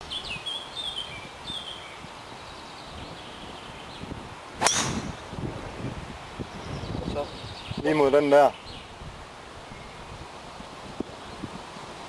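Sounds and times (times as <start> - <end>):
birds chirping faintly: 0.0 - 11.8
golf driver striking ball: 4.6 - 5.3.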